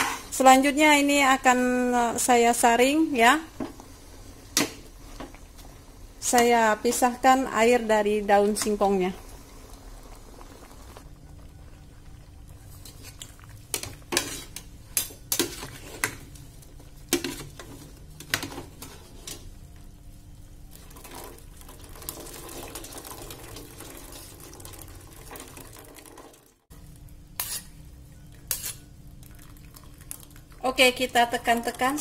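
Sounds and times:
water splashing and trickling: 20.8 - 26.6
strainer scraping metal pot: 27.4 - 27.7.

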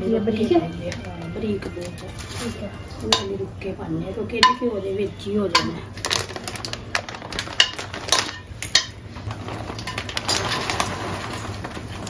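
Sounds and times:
plastic packet crinkling: 0.9 - 3.1, 5.9 - 12.0
spoon clinking against metal pot: 3.0 - 3.4, 4.4 - 4.8, 5.5 - 5.9, 7.6 - 9.0.

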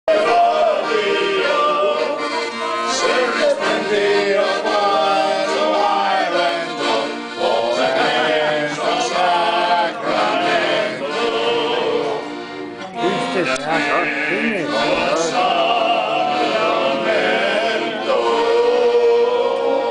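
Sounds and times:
piano accordion chords: 0.1 - 19.9
man singing: 13.0 - 19.3.

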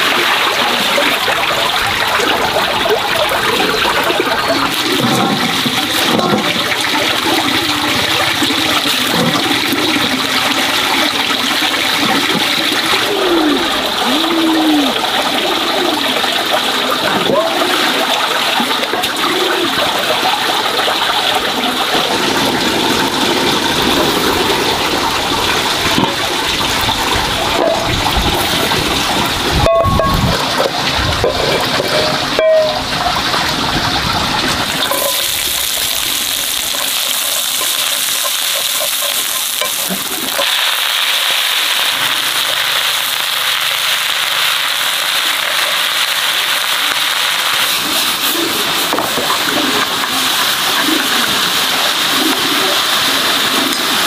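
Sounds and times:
water splashing and pouring: 0.0 - 54.0
metal cookware clanking: 29.6 - 33.3, 34.8 - 40.5
greens sizzling in a pan: 34.8 - 54.0.

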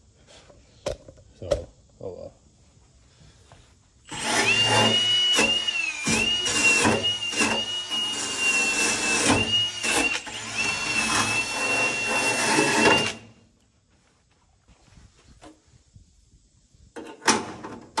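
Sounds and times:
power tool motor whine: 4.1 - 13.4.

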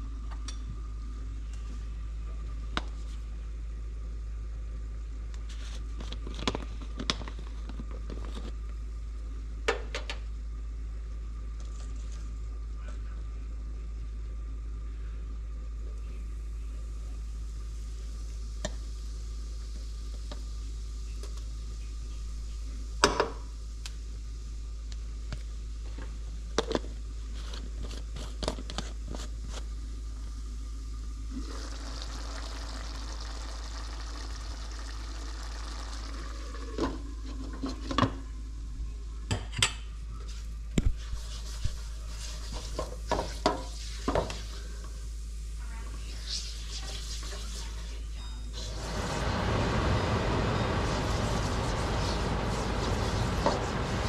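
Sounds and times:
curry sizzling in oil: 31.4 - 36.6.

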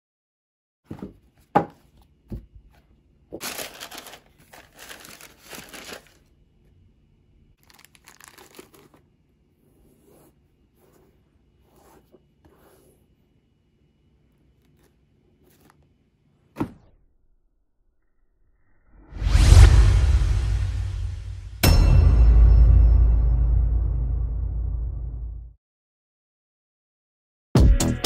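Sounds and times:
cardboard lid knocks: 0.9 - 2.5
tissue paper crinkling: 3.4 - 6.3, 7.6 - 9.0.

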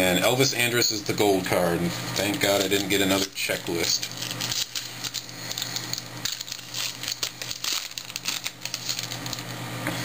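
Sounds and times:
foil wrapper crinkling: 2.1 - 9.6.

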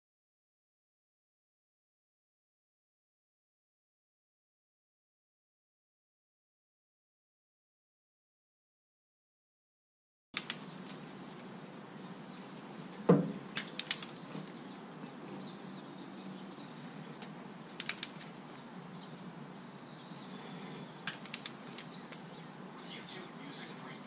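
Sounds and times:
torque wrench clicking: 10.4 - 10.6, 13.6 - 14.2, 17.8 - 18.2, 21.1 - 21.6
loud knock: 13.1 - 13.4.

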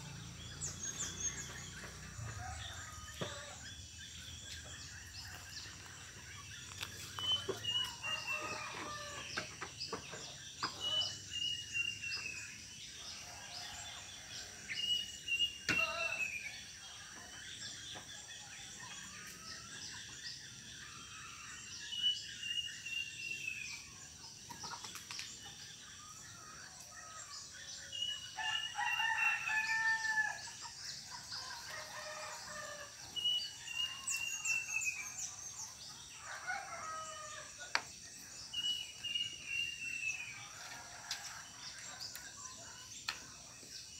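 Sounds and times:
rooster crowing: 7.9 - 9.4, 28.4 - 30.4.

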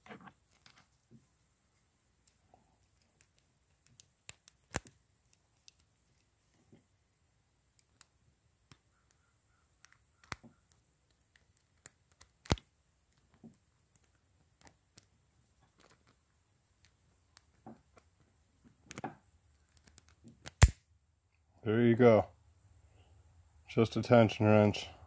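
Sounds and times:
small metal clicks and ticks: 2.2 - 6.3, 9.8 - 16.2, 18.8 - 20.7.

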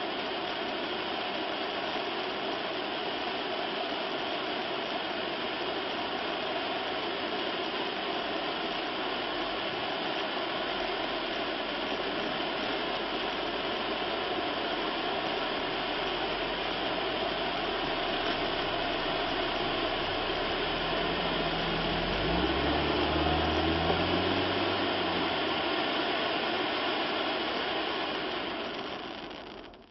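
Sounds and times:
fountain firework spraying sparks: 0.0 - 29.9.

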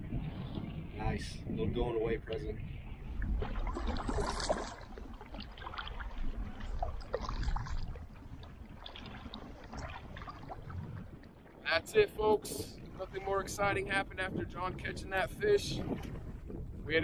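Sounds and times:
low wind rumble: 0.0 - 17.0
paddle splashing water: 2.6 - 11.8, 15.7 - 16.8.

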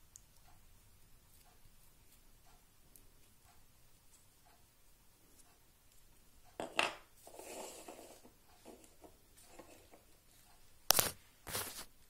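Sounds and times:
light scraping and rustling: 7.2 - 11.9.

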